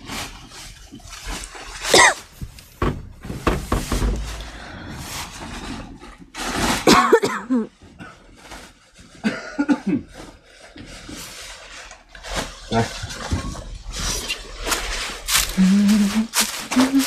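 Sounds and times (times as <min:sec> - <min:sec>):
plastic sack rustling: 0:00.0 - 0:17.0
cough-like bursts: 0:01.8 - 0:02.3, 0:06.8 - 0:07.7.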